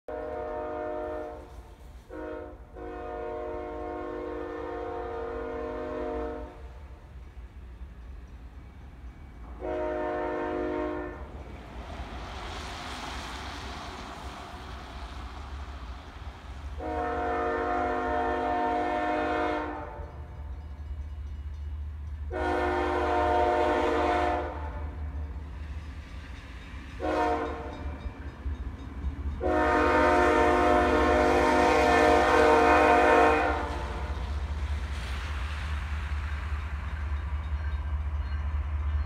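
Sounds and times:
locomotive air horn: 0:00.1 - 0:06.9, 0:09.6 - 0:11.3, 0:16.8 - 0:20.2, 0:22.3 - 0:25.0, 0:27.0 - 0:27.8, 0:29.4 - 0:34.2
train rumble: 0:00.1 - 0:39.0.

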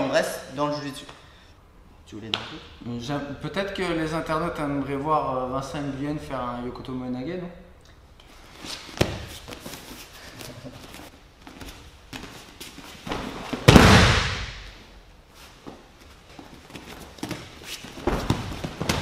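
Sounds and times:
bodies thudding onto mat: 0:13.0 - 0:14.6, 0:17.2 - 0:19.0
bare feet scuffing on mat: 0:15.3 - 0:19.0.

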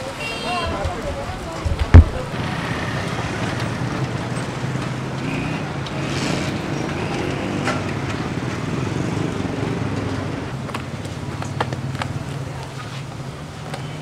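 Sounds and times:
street noise hum: 0:00.0 - 0:14.0.

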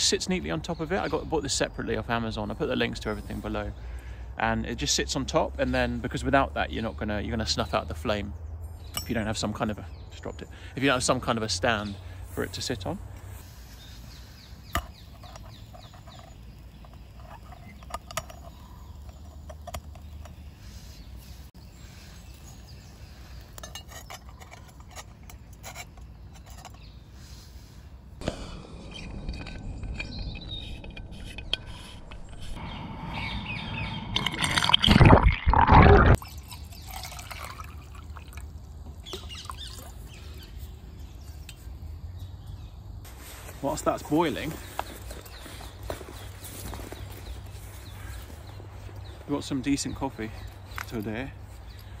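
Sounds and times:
water pouring into metal pot: 0:34.1 - 0:38.6.

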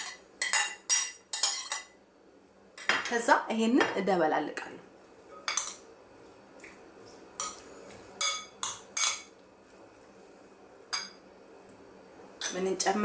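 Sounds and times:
metal spoon clinking against bowl: 0:00.0 - 0:01.9, 0:05.4 - 0:05.8.

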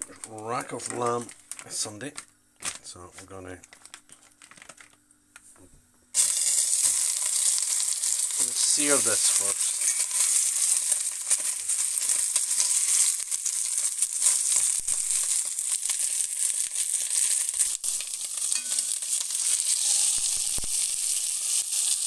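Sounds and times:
meat sizzling with crackling: 0:06.1 - 0:22.0.

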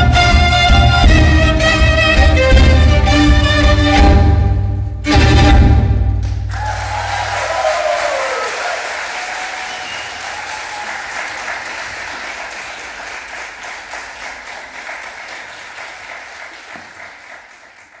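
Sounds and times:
audience applauding: 0:06.2 - 0:18.0.

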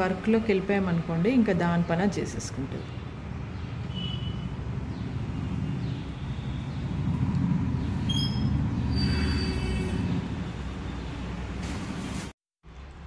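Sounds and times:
high-pitched chirps: 0:08.0 - 0:09.5.

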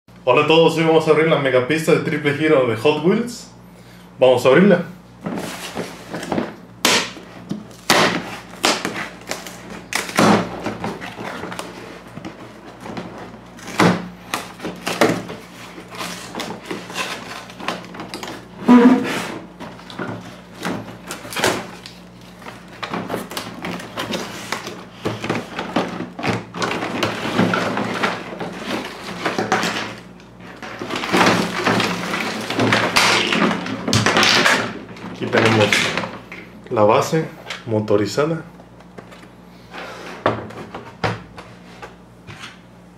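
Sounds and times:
plastic pieces rustling and clattering: 0:19.6 - 0:36.2.

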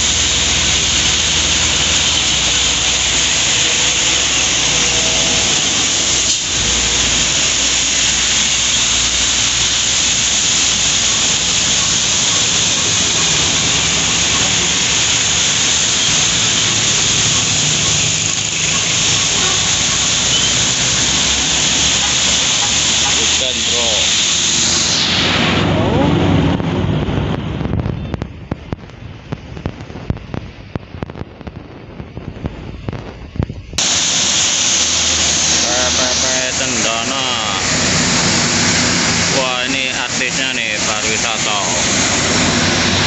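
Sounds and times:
rain falling: 0:00.0 - 0:23.4
vehicles passing on wet road: 0:00.0 - 0:27.6, 0:34.0 - 0:43.0.

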